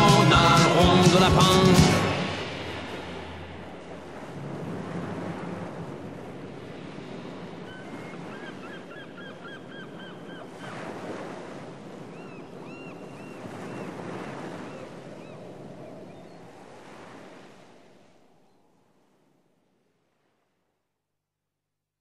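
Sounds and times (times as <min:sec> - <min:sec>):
waves breaking: 0:00.0 - 0:18.4
birds calling: 0:07.6 - 0:10.8.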